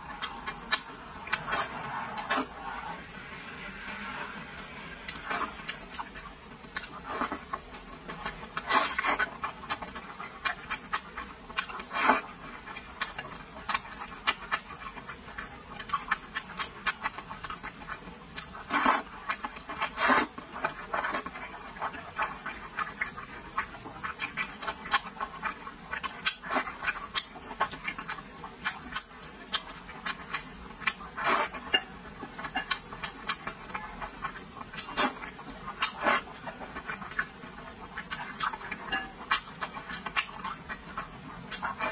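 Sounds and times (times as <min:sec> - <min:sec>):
wet chewing and lip smacks: 0:00.1 - 0:02.5, 0:05.0 - 0:41.9.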